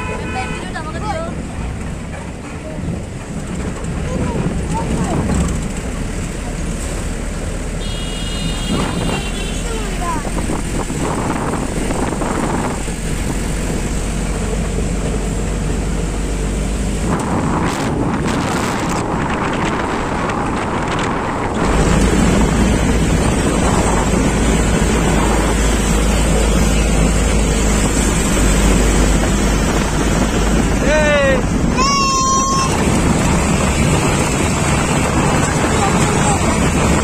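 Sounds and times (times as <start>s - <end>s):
moving vehicle running noise: 0.0s - 37.0s
wind on microphone: 8.4s - 37.0s.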